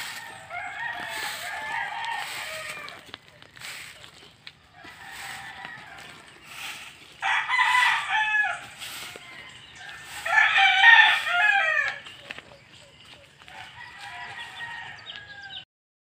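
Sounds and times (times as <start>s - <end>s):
rooster crowing: 0.0s - 3.0s, 4.7s - 12.2s, 13.4s - 15.6s.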